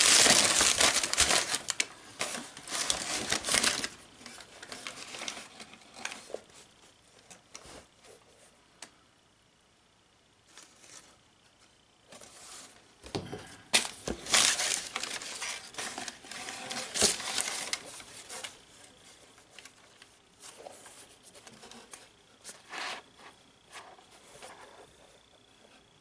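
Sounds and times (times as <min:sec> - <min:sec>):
tissue paper crinkling: 0:00.0 - 0:06.4, 0:13.7 - 0:18.6.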